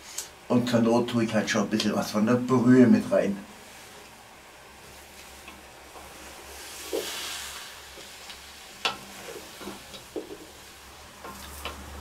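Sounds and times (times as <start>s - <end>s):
food sizzling in a pot: 3.5s - 12.0s
wooden spoon scraping steel pot: 5.1s - 12.0s.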